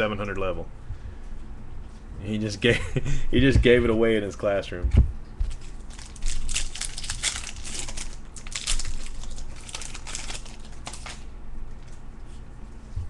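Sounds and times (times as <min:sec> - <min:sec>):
wrapper crinkling and tearing: 0:05.5 - 0:12.0.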